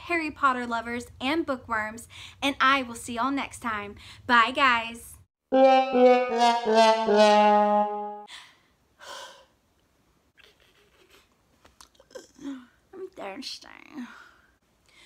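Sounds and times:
brass comedy sting: 5.5 - 8.3.

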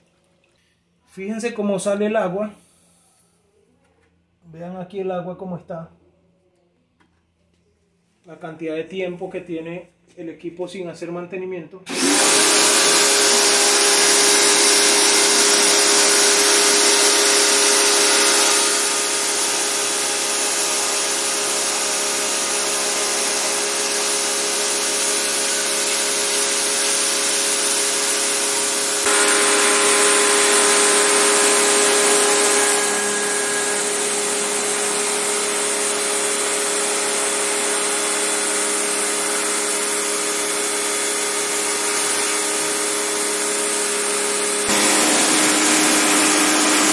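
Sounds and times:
pressure washer motor humming: 11.9 - 46.9.

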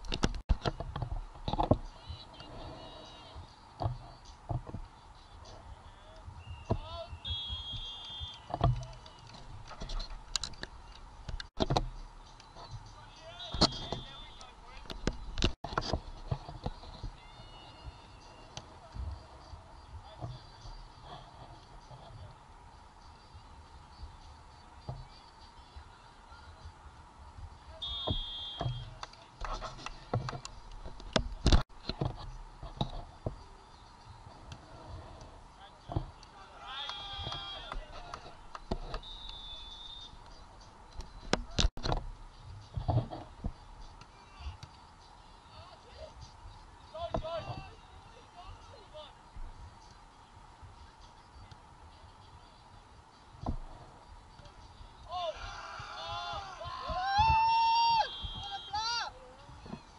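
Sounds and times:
referee's whistle: 6.4 - 8.6, 13.2 - 14.5, 27.8 - 29.0, 39.0 - 40.2, 57.2 - 59.1
light clicks and thuds: 27.4 - 33.5, 40.2 - 44.8, 47.0 - 47.8, 53.3 - 54.7.

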